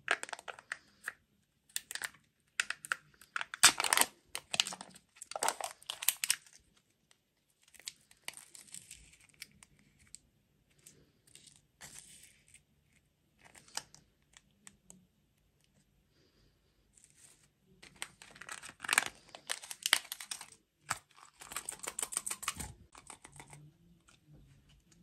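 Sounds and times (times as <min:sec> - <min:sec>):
foil seal peeling and crinkling: 0:00.1 - 0:00.9, 0:01.8 - 0:06.6, 0:17.8 - 0:23.6
plastic tray rustling and clicks: 0:17.8 - 0:23.6.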